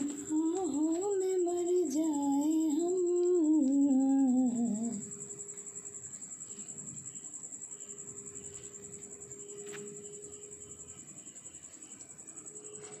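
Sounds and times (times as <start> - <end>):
person humming a slow tune: 0.0 - 5.2
faint high-pitched whine: 0.0 - 13.0.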